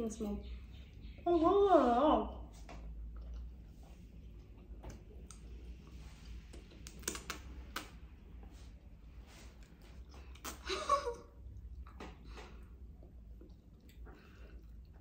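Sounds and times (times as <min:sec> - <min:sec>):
noodles slurped and chewed: 0:02.5 - 0:07.8, 0:11.4 - 0:15.0
lip smacks: 0:04.3 - 0:08.1, 0:09.6 - 0:15.0
small mouth clicks: 0:10.1 - 0:10.7.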